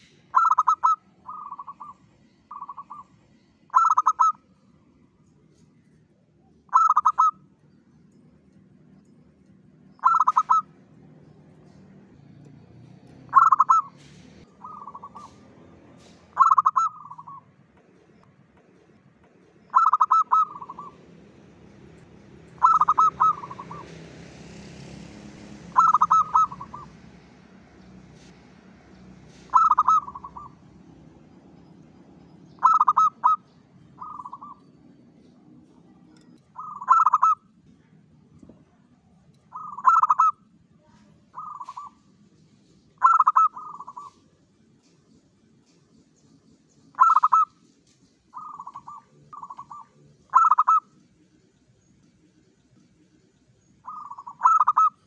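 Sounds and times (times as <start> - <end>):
dove cooing: 0.3 - 3.1, 3.7 - 4.4, 6.7 - 7.4, 10.0 - 10.8, 13.3 - 15.4, 16.3 - 17.4, 19.7 - 21.0, 22.5 - 24.0, 25.7 - 27.0, 29.4 - 30.6, 32.6 - 34.7, 36.5 - 37.5, 39.5 - 40.4, 41.3 - 42.0, 43.0 - 44.3, 47.0 - 47.5, 48.3 - 50.9, 53.8 - 55.0.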